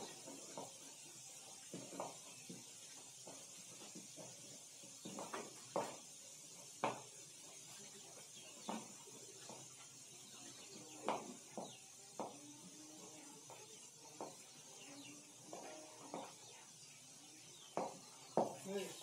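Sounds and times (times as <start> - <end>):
steady hiss: 0.0 - 19.0.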